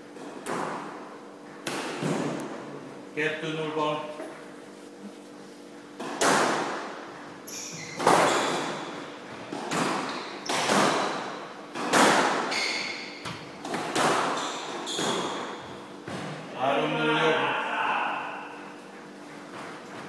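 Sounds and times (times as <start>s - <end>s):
squash ball hits echoing: 0.1s - 2.6s, 6.0s - 7.1s, 8.0s - 16.4s
sneaker squeaks on wooden floor: 7.4s - 9.1s, 9.9s - 11.3s, 12.5s - 13.4s, 14.2s - 15.8s.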